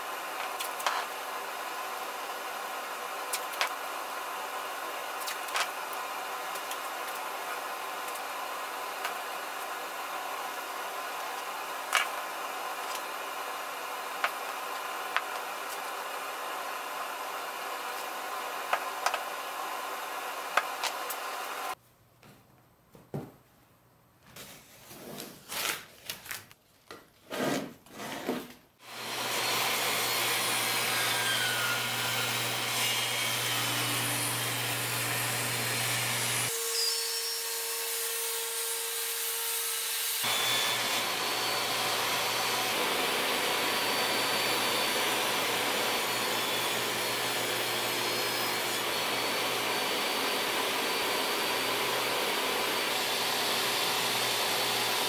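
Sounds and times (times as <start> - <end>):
table saw running: 28.8 - 55.0.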